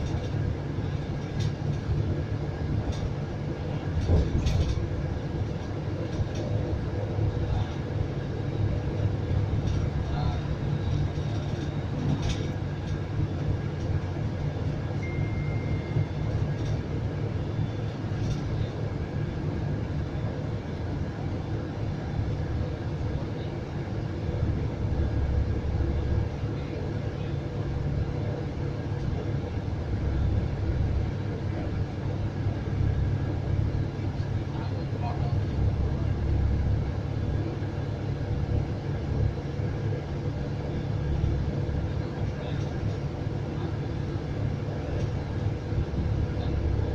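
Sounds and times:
bus engine and road rumble: 0.0s - 46.9s
faint high beep: 15.0s - 16.4s.

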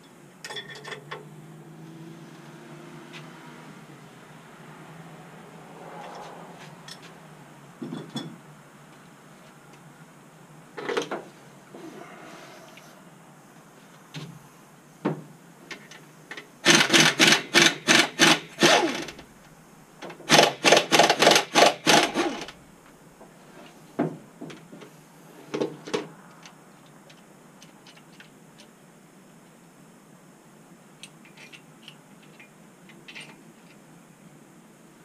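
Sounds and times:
metal tools clinking: 0.4s - 1.2s
power ratchet rattling: 16.6s - 19.2s, 20.3s - 22.6s.

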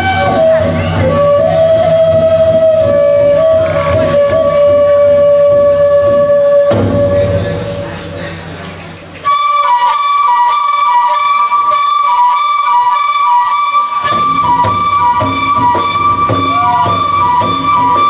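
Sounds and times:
drums and percussion: 0.0s - 10.0s, 13.6s - 18.0s
wind instrument melody: 0.0s - 18.0s.

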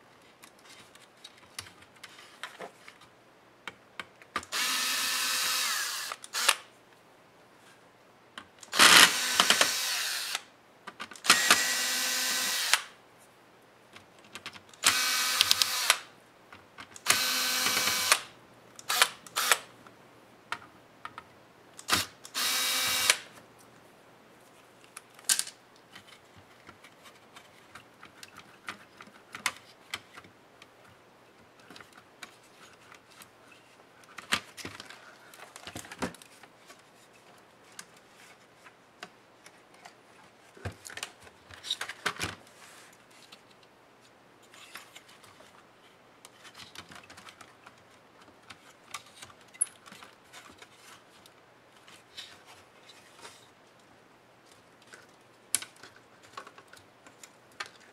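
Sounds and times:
electric screwdriver whirring: 4.5s - 6.6s, 8.7s - 10.5s, 11.2s - 12.9s, 14.8s - 16.1s, 17.0s - 18.3s, 18.9s - 19.6s, 21.9s - 23.3s.

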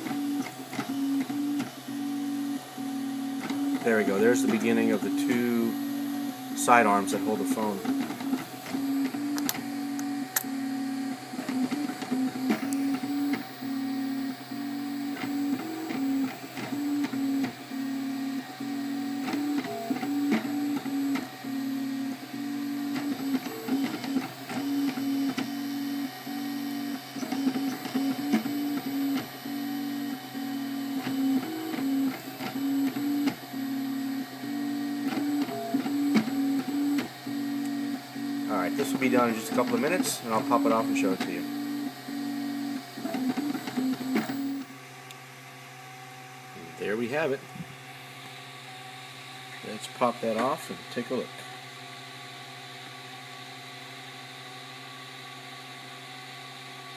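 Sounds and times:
cooling fans humming: 0.0s - 45.2s.

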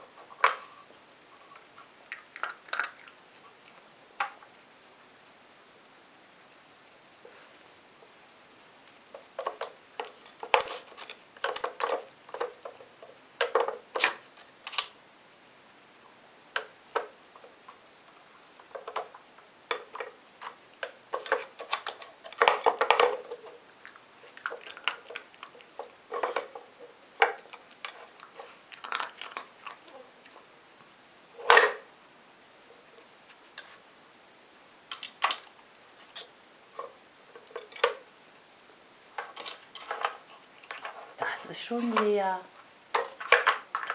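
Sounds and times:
wooden puzzle toy clacking: 9.3s - 14.9s, 18.6s - 23.6s, 42.9s - 43.9s.

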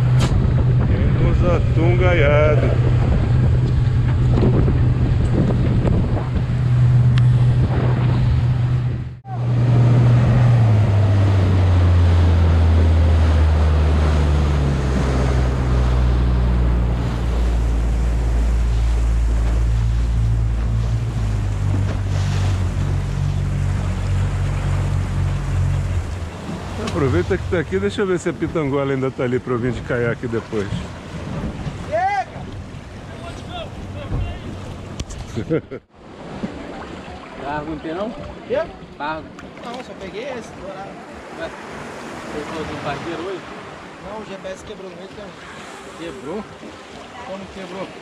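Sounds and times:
wind on microphone: 0.0s - 27.3s, 30.6s - 33.1s
motorboat engine running: 0.0s - 48.0s
water rushing: 0.0s - 48.0s.

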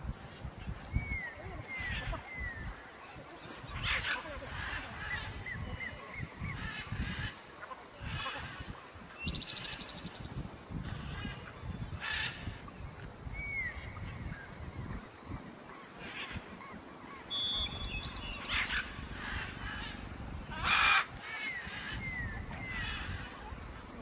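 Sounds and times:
bird trilling: 17.2s - 23.2s
whistled bird note: 17.3s - 18.8s.

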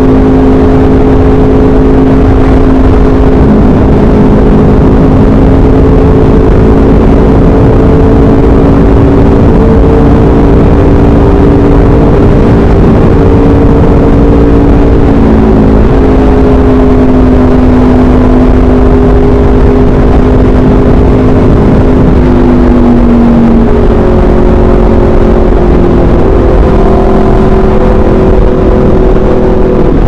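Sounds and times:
motorcycle engine cruising: 0.0s - 30.0s.

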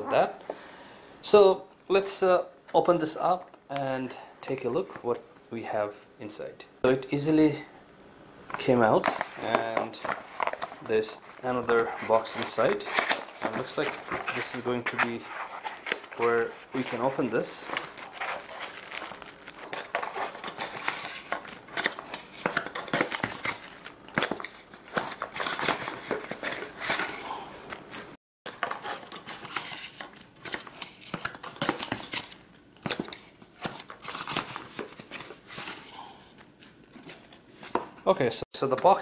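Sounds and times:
paper and plastic wrapping crinkling: 8.9s - 37.8s.

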